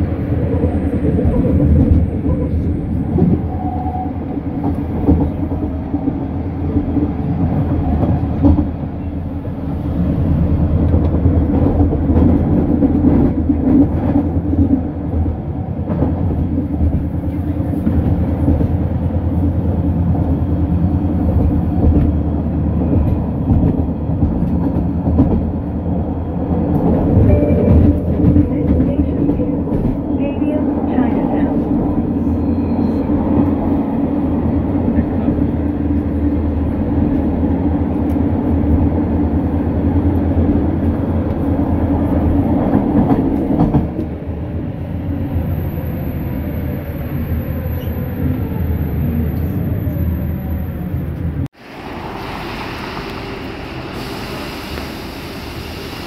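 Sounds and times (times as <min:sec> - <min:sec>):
train rumbling on track: 0:00.0 - 0:56.0.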